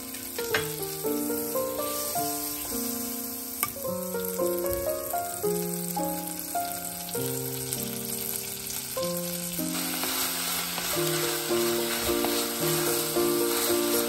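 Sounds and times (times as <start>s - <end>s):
butter sizzling: 0.0s - 14.0s
onions frying: 0.0s - 14.0s
wooden spatula stirring: 9.8s - 14.0s.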